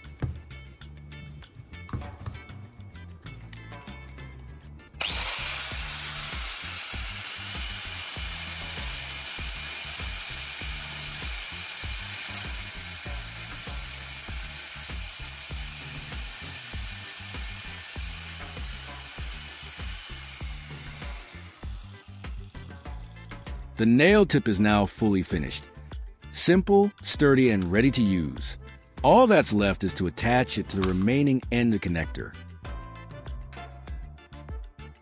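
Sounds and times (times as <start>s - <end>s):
music with steady beat: 0.0s - 35.0s
angle grinder grinding metal: 5.0s - 24.0s.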